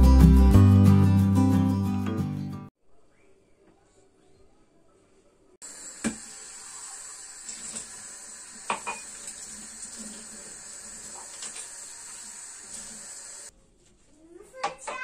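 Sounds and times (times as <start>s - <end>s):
tap running into steel sink: 6.0s - 6.3s, 8.6s - 9.4s.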